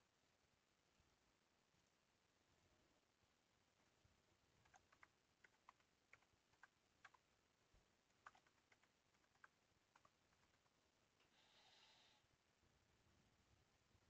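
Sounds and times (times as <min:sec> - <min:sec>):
keyboard typing: 0:04.6 - 0:07.3, 0:08.1 - 0:10.8.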